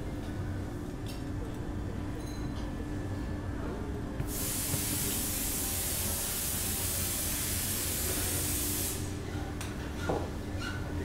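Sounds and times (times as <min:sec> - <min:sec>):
low workshop hum: 0:00.0 - 0:11.0
compressed air hissing from blow gun: 0:04.3 - 0:09.1.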